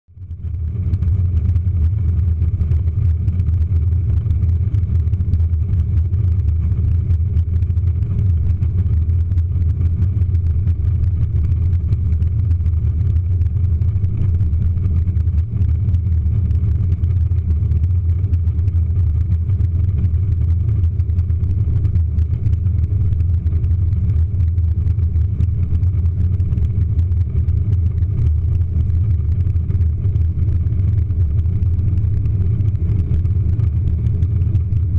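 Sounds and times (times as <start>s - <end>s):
jet engine rumble in cabin: 0.1s - 34.9s.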